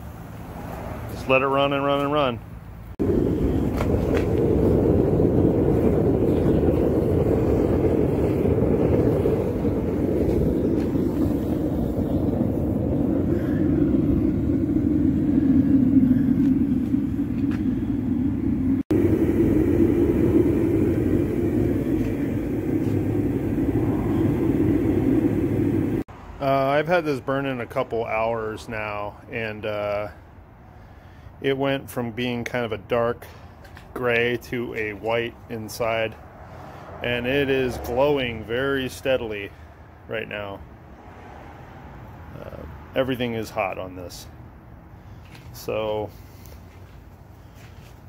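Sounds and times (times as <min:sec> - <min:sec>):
burner flame rushing: 0:00.0 - 0:01.4, 0:02.9 - 0:26.1, 0:35.4 - 0:39.3.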